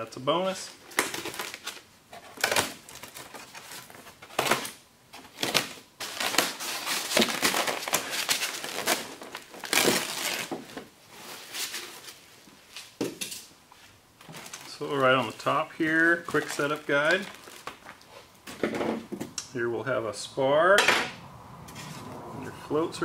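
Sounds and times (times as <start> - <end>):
plastic wrap crinkling: 0.6 - 13.0, 13.8 - 18.3.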